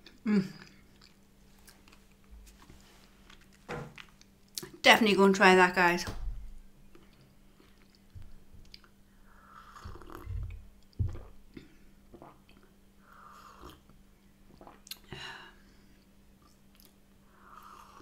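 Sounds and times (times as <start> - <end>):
chewing and swallowing: 0.6 - 2.3, 6.9 - 9.0, 9.7 - 12.8, 13.6 - 15.1.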